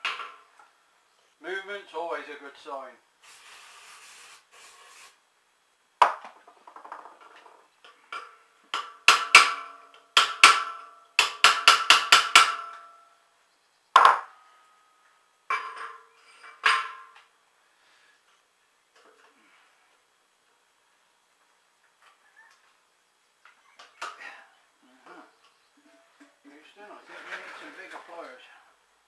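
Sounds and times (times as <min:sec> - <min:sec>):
aerosol can spraying: 0:03.2 - 0:05.2.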